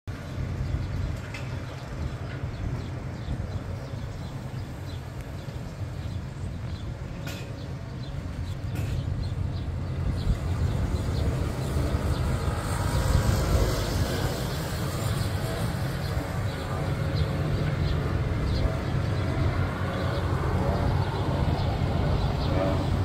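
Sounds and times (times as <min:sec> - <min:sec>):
cars and scooters passing: 0:09.0 - 0:23.0.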